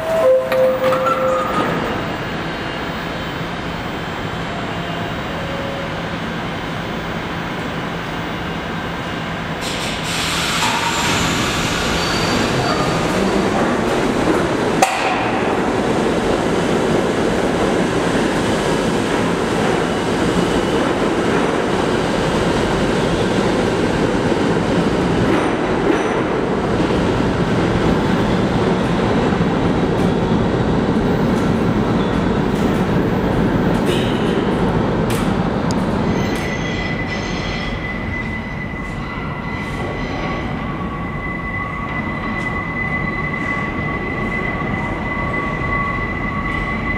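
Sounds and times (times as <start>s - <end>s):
subway train rumbling: 0.0s - 46.9s
high wheel squeal: 9.6s - 13.2s, 36.0s - 46.9s.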